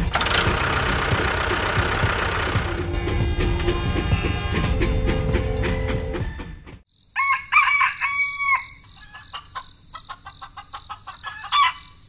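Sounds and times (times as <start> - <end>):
music: 0.0 - 6.8
crickets chirring: 6.9 - 12.0
rooster crowing: 7.1 - 12.0.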